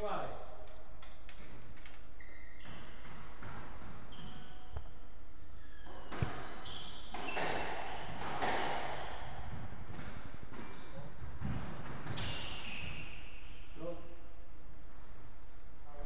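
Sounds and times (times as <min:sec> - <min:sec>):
noisy hiss: 0:07.8 - 0:16.0.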